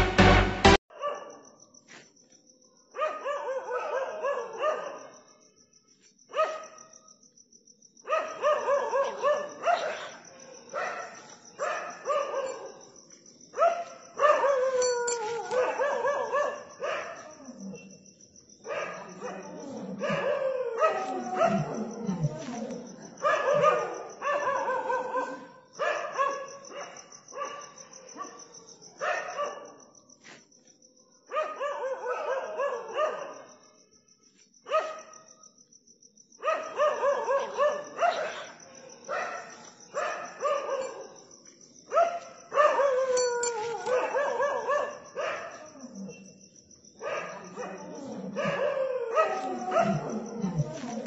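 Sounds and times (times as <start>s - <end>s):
dog barking: 0.9s - 1.6s, 2.9s - 5.2s, 6.3s - 6.9s, 8.0s - 12.9s, 13.6s - 17.8s, 18.6s - 22.0s, 23.1s - 29.9s, 31.3s - 33.6s, 34.7s - 35.2s, 36.4s - 41.3s, 41.9s - 46.4s, 47.0s - 51.0s.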